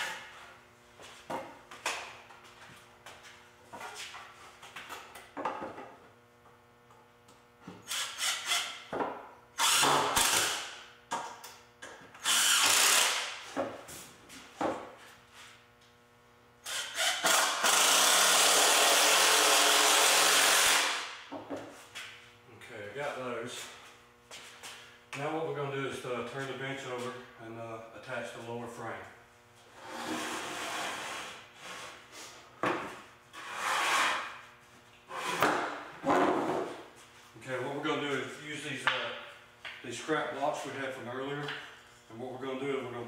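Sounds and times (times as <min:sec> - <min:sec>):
impact driver driving screws: 0:09.6 - 0:10.7, 0:12.2 - 0:13.3.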